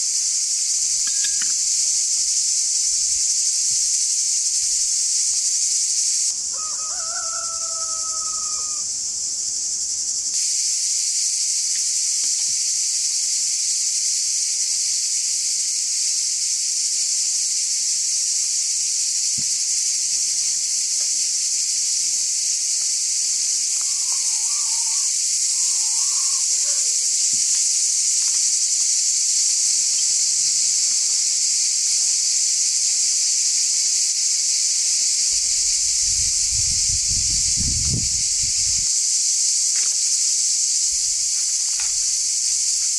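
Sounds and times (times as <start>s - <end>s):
insects chorus in trees: 0.0s - 42.9s
rooster crowing: 6.4s - 9.0s, 23.7s - 26.8s.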